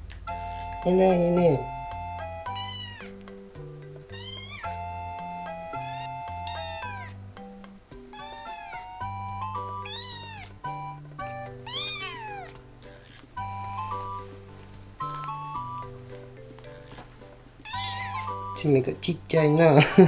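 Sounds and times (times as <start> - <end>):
light background music: 0.0 - 20.0
kitten meowing: 1.4 - 3.3, 4.0 - 7.2, 8.0 - 14.2, 17.6 - 18.6.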